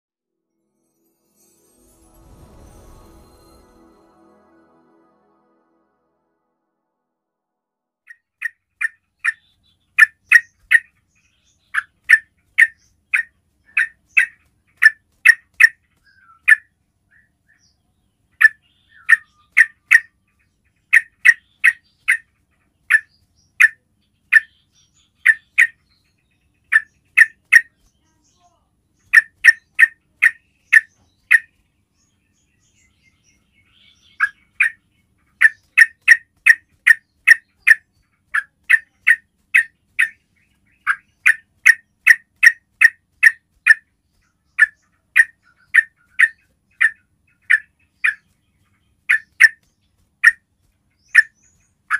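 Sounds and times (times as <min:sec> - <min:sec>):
bulbul calling: 0:08.1 - 0:16.7, 0:18.4 - 0:20.1, 0:20.9 - 0:25.8, 0:26.6 - 0:27.9, 0:29.0 - 0:31.6, 0:33.7 - 0:48.3, 0:49.0 - 0:50.4, 0:51.0 - 0:51.9.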